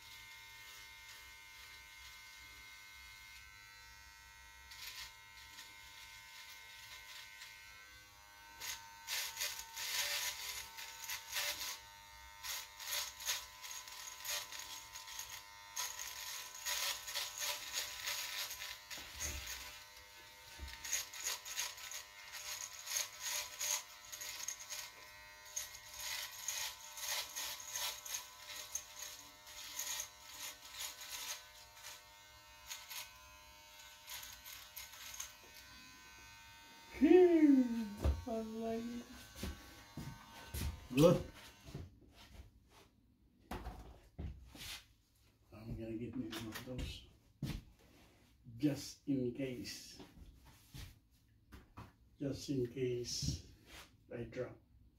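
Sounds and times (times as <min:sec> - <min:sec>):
hair trimmer buzzing: 0:00.0 - 0:41.8
trimmer blade cutting whiskers: 0:00.2 - 0:41.7.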